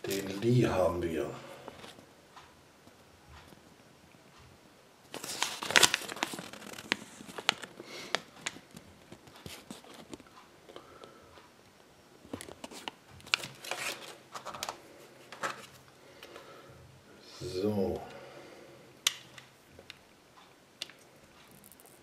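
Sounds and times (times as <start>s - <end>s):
paper crinkling: 5.1s - 10.3s, 12.3s - 15.8s.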